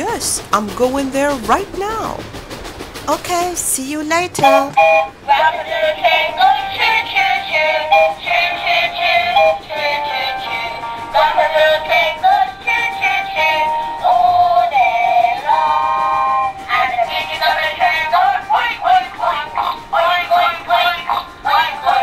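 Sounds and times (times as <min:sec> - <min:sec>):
high synthesized melody: 0:04.3 - 0:05.2.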